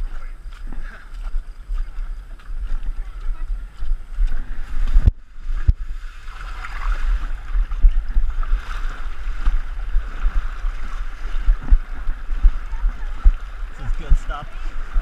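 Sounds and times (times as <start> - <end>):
wind noise on microphone: 0.0 - 15.0.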